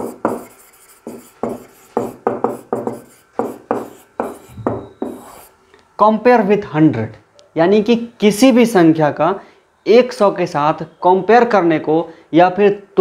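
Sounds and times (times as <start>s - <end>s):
marker pen writing on whiteboard: 0.0s - 5.5s.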